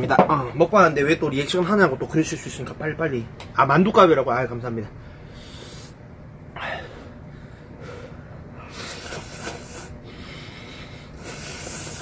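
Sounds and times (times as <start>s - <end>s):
person breathing: 5.0s - 6.0s, 6.6s - 12.0s
person slurping noodles: 8.7s - 9.9s, 11.2s - 12.0s.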